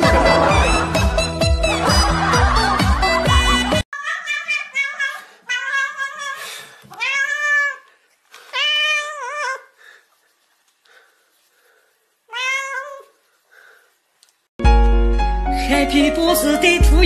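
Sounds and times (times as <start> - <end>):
music: 0.0 - 3.8, 14.6 - 17.0
cat meowing: 4.0 - 7.9, 8.5 - 9.7, 12.3 - 13.2.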